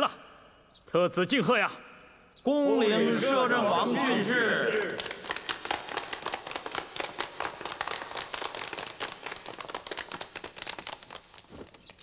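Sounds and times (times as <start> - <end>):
people applauding: 3.8 - 12.0.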